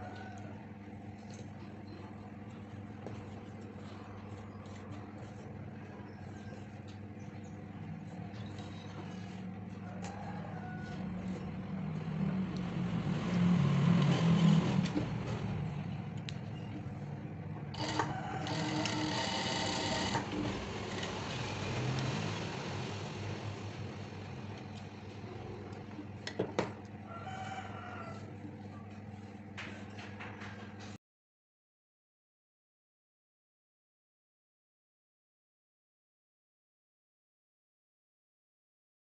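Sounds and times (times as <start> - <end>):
sewing machine stitching: 13.3 - 15.5, 17.7 - 23.9.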